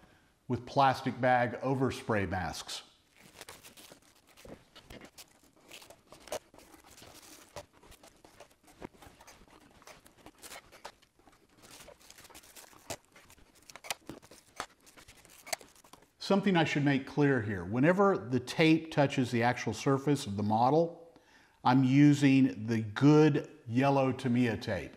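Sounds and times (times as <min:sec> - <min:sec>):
plastic bags crinkling: 0:03.0 - 0:16.2
masking tape tearing: 0:03.1 - 0:16.2.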